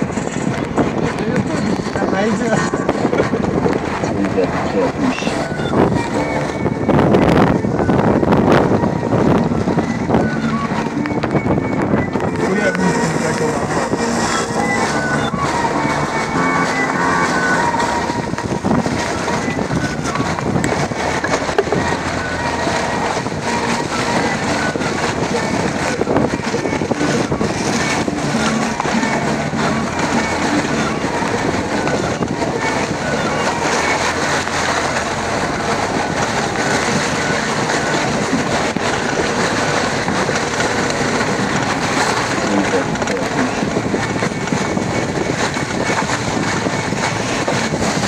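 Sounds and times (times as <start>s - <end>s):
off-road vehicle engines under load: 0.0s - 48.0s
wind buffeting microphone: 0.0s - 48.0s
tyres in mud: 10.4s - 48.0s.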